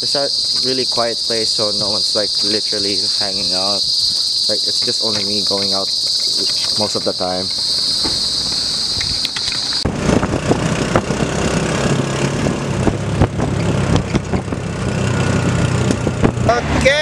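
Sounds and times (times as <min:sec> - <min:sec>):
vehicle engine drone: 0:00.0 - 0:03.8, 0:04.5 - 0:17.0
insects trilling: 0:00.0 - 0:12.2
vehicle body rattles and knocks: 0:05.0 - 0:16.5.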